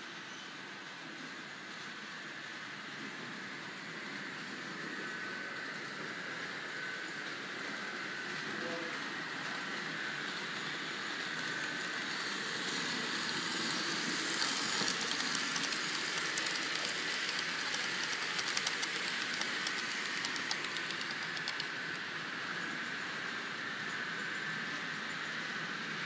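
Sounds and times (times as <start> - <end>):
steady hiss: 3.6 - 26.0
model train wheels clicking: 6.0 - 23.2.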